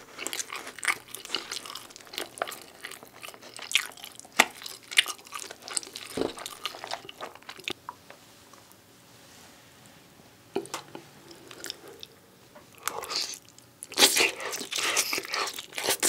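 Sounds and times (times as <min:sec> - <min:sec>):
chewing pizza with crunches: 0:00.0 - 0:07.8, 0:11.4 - 0:16.0.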